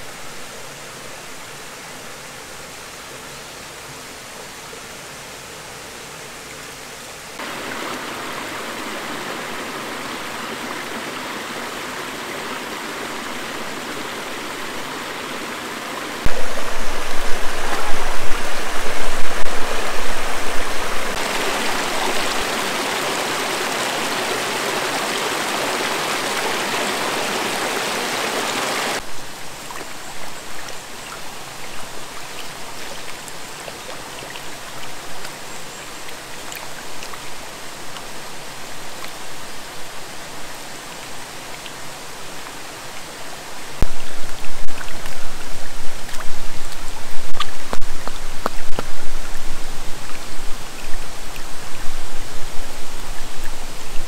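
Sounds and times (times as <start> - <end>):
stream rushing over rocks: 0.0 - 54.0
low water rumble: 7.4 - 25.1.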